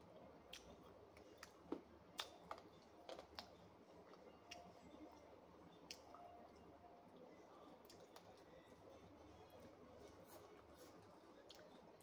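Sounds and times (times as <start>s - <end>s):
chewing smacks: 0.5s - 4.7s.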